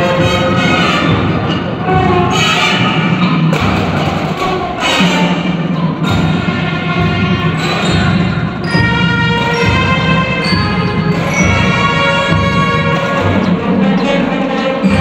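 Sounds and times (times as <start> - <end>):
drum and percussion hits: 0.0 - 15.0
marching band playing: 0.0 - 15.0.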